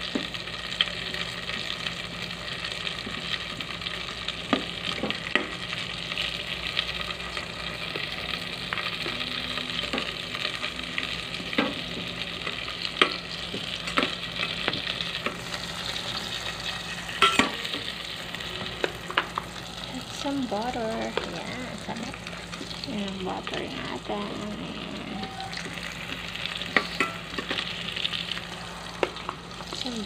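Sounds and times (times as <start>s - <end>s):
food sizzling in butter: 0.0s - 30.0s.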